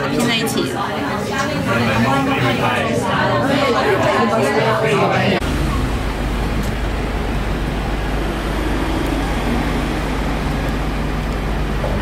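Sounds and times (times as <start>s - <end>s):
faint hum: 5.4s - 12.0s
low mechanical rumble: 5.4s - 12.0s.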